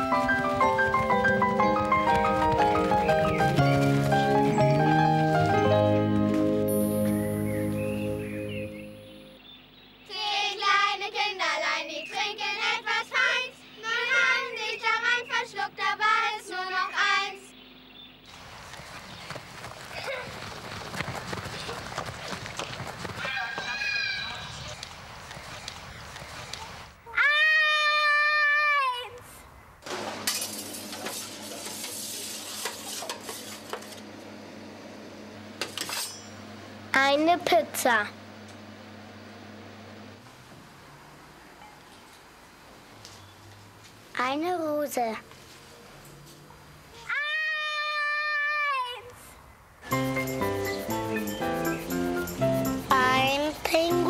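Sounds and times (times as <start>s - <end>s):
children singing: 10.1s - 17.5s
steady hum and hiss: 24.5s - 47.8s.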